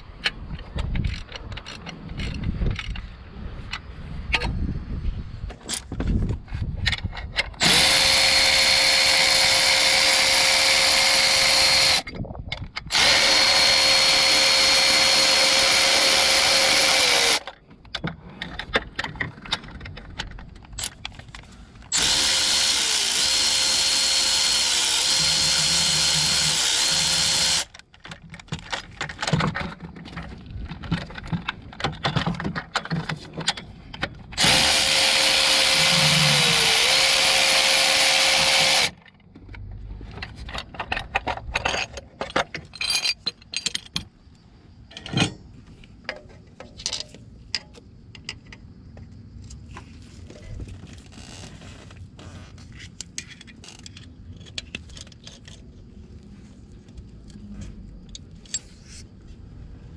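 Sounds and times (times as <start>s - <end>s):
tool and socket clicks and rattles: 0.0s - 4.6s, 5.5s - 23.3s, 38.3s - 44.1s, 46.1s - 48.6s, 52.7s - 55.8s
electric power driver whining: 7.6s - 12.1s, 12.9s - 17.5s, 21.9s - 27.8s, 34.4s - 39.0s.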